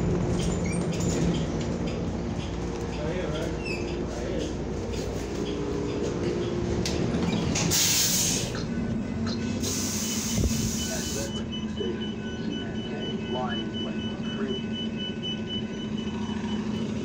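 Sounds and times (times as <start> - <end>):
bus running hum: 0.0 - 17.0
compressed air hiss: 7.7 - 8.6, 9.6 - 11.3.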